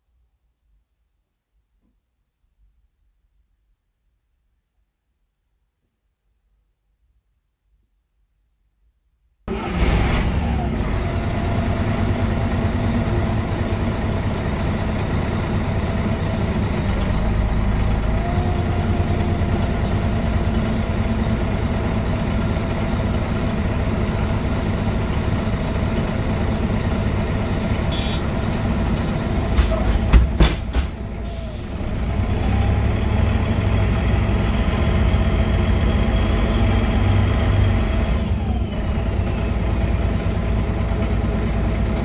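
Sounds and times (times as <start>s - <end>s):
bus diesel engine rumbling: 9.5s - 42.0s.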